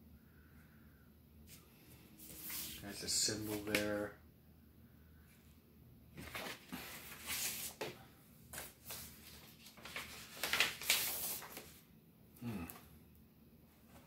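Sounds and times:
cardboard and paper rustling: 6.2s - 11.8s.

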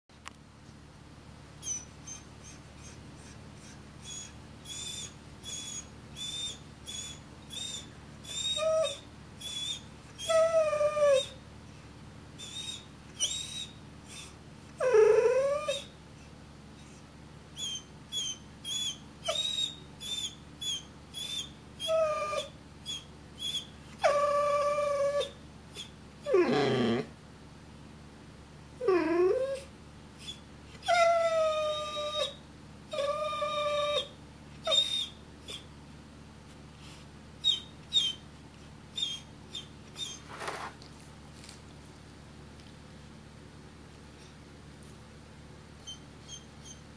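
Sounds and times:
dog whimpering and whining: 1.6s - 11.4s, 12.4s - 15.9s, 17.6s - 27.1s, 28.8s - 35.7s, 37.4s - 38.2s, 38.9s - 40.3s, 45.8s - 46.9s.

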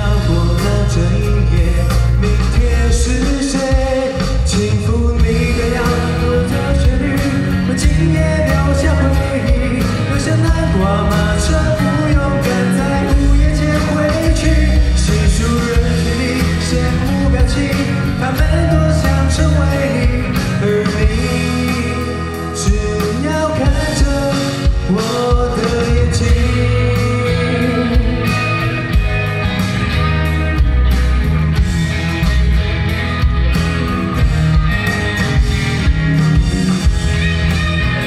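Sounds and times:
man singing into microphone: 0.0s - 29.0s
rock backing track: 0.0s - 38.0s.

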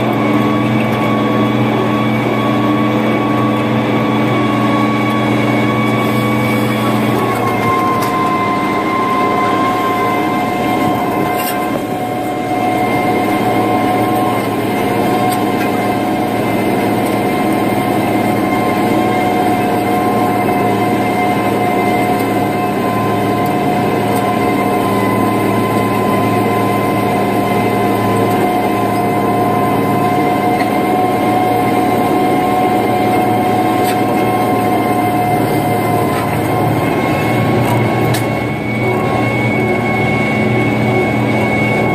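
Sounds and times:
diesel tractor engine under load: 0.0s - 41.9s
steady whine: 0.0s - 41.9s.

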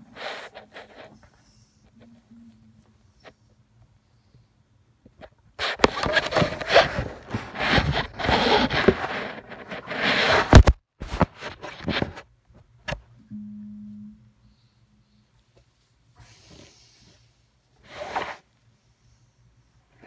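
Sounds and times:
phone rubbing against clothing: 0.0s - 2.6s, 5.6s - 12.3s.

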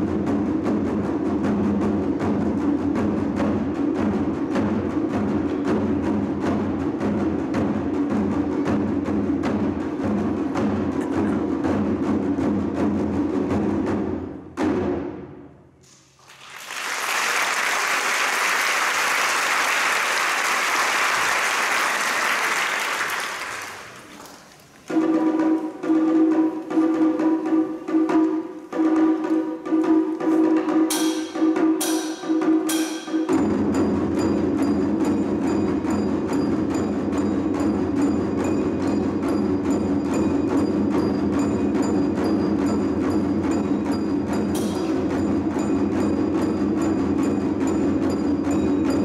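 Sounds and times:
taiko drumming: 0.0s - 15.7s, 17.8s - 49.0s
applause: 16.0s - 24.8s.

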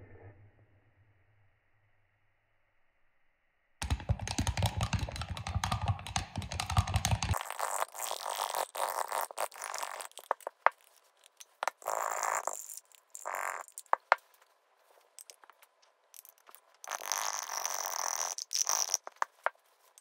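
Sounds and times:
brush scraping glass jar: 7.3s - 14.2s.

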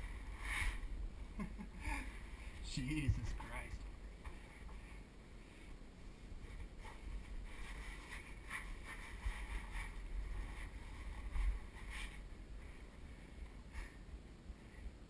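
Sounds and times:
microphone handling rumble: 2.8s - 3.9s.

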